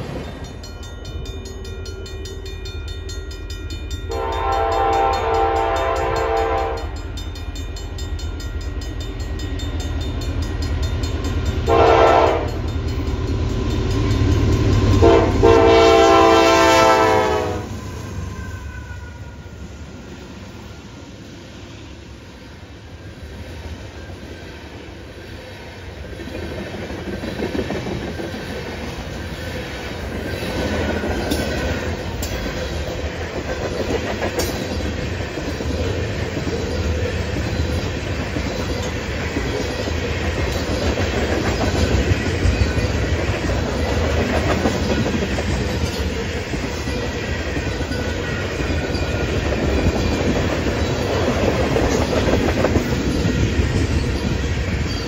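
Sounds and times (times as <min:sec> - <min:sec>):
freight train wheels clattering: 0:25.4 - 0:55.0.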